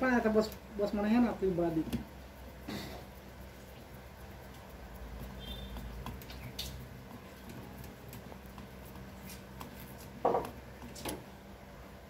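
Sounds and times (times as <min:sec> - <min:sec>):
knock-like scrape: 0:10.2 - 0:11.2.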